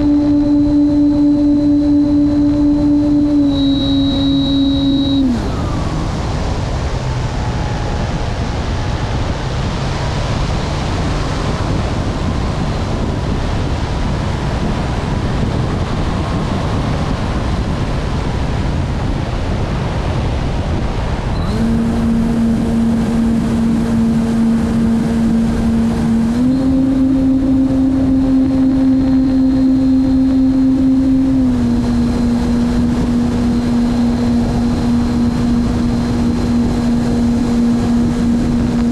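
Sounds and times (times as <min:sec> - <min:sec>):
model airplane motor humming: 0:00.0 - 0:06.1, 0:21.4 - 0:38.9
wind rushing over camera: 0:00.0 - 0:38.9.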